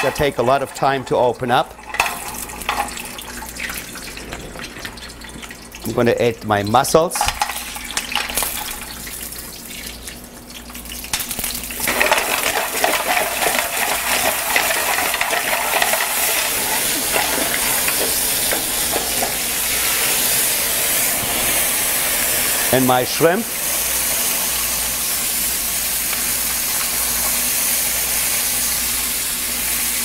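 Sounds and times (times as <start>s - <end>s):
frying sizzle: 0.0s - 30.0s
shells clattering into a pan: 11.1s - 19.7s.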